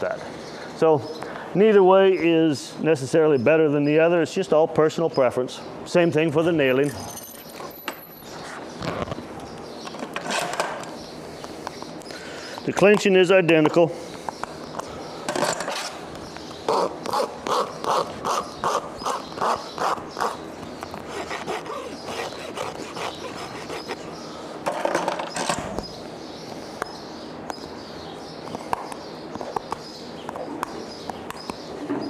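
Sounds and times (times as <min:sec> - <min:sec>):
tool scraping hoof: 0:16.7 - 0:24.1.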